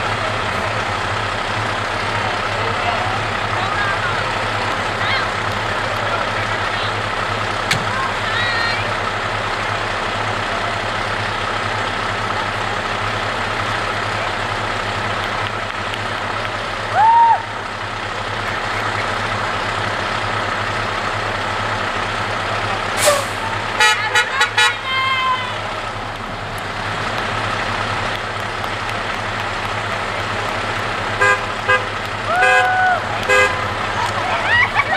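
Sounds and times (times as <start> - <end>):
cars passing: 0.0 - 34.9
diesel truck engine idling: 0.0 - 34.9
car horn honks: 23.8 - 24.9, 31.2 - 32.7, 33.3 - 33.6.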